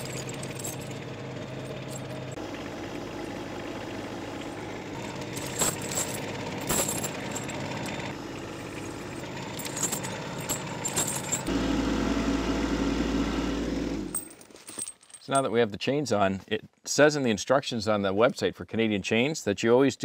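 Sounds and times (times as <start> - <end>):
steel chain links clanking: 0.0 - 2.4, 5.0 - 11.5, 14.1 - 15.6
diesel tractor engine running: 0.0 - 14.2.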